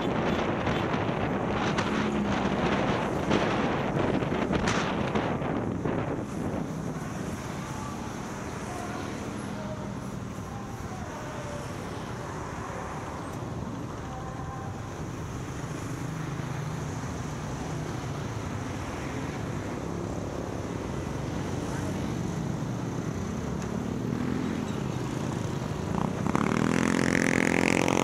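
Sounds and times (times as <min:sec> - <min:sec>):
wind noise: 0:00.0 - 0:08.7.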